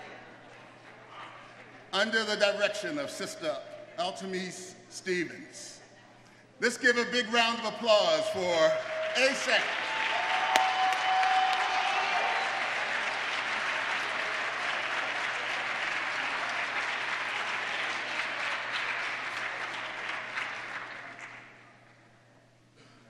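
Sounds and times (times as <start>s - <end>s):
congregation applauding: 7.3s - 21.8s.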